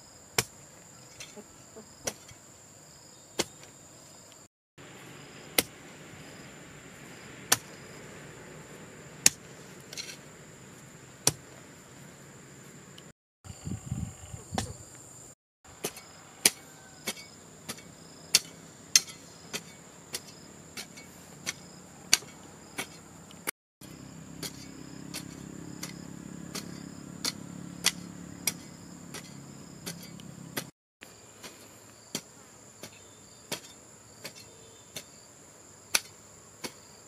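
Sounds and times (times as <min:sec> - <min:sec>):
insects droning: 0:00.0 - 0:37.0
hoe striking soil: 0:00.4 - 0:01.4, 0:02.0 - 0:02.4, 0:03.4 - 0:03.7, 0:05.4 - 0:06.0, 0:07.5 - 0:08.0, 0:09.2 - 0:10.4, 0:11.1 - 0:11.6, 0:15.7 - 0:23.5, 0:24.3 - 0:35.2, 0:35.9 - 0:37.0.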